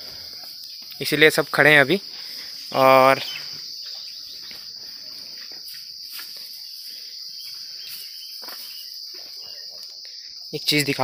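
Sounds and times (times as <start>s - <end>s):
high-pitched insect drone: 0.0s - 11.0s
faint scuffs: 3.5s - 10.0s.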